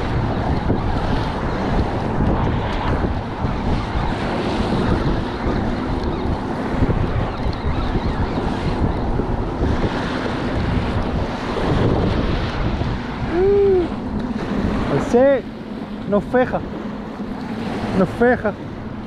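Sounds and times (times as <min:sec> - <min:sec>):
small waves on choppy water: 0:00.0 - 0:19.0
wind buffeting microphone: 0:00.0 - 0:19.0.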